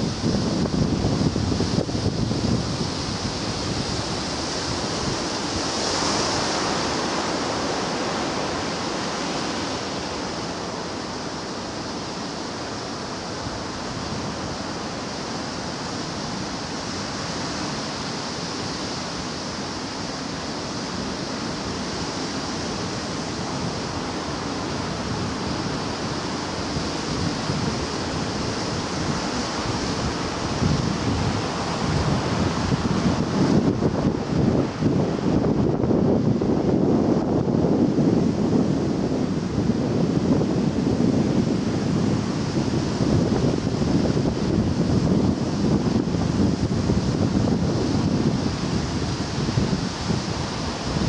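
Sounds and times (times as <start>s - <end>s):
waves washing in: 0.0s - 51.0s
wind rumbling on microphone: 0.0s - 51.0s.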